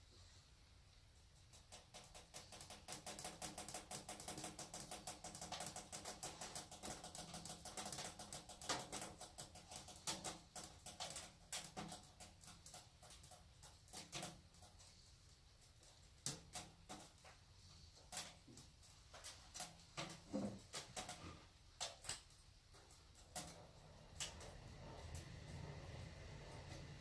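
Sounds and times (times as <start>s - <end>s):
pellet stove clicking and ticking: 1.5s - 14.8s.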